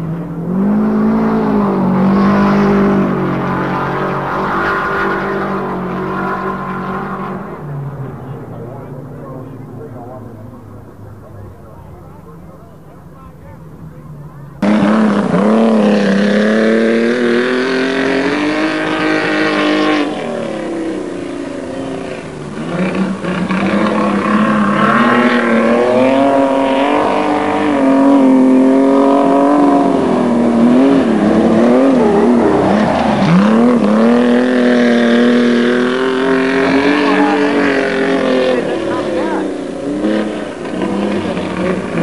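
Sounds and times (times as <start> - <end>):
racing car engines droning: 0.0 - 42.0.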